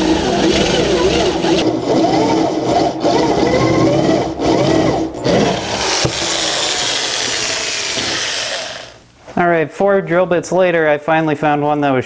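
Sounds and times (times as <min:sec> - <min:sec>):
electric drill cutting steel: 0:00.0 - 0:09.0.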